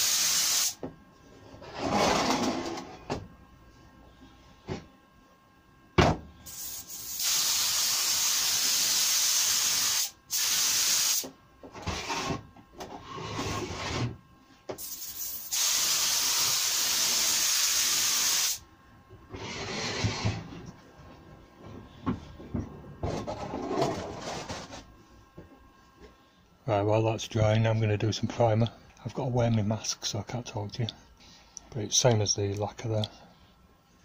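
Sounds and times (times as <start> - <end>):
spray gun hissing: 0.0 - 0.8, 6.5 - 11.2, 14.8 - 18.6.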